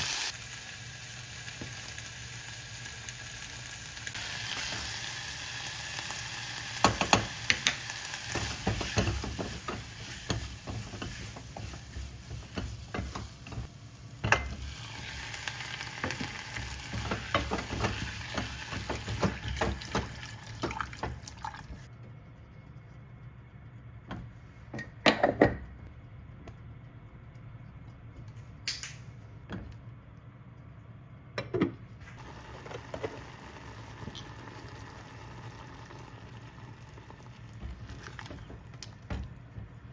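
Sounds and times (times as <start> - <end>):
chicken and onion sizzling: 0.0 - 21.9, 32.0 - 39.9
spatula scraping and knocking pan: 6.8 - 14.7, 16.0 - 21.2.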